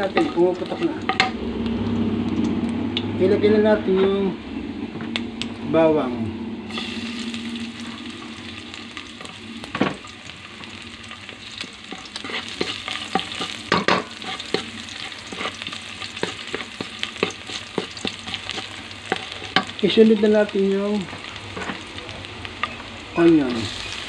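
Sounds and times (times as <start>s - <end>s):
wooden spatula scraping a wok: 0.0s - 1.4s, 11.3s - 19.8s
garlic sizzling in hot oil: 0.0s - 2.5s, 6.7s - 24.0s.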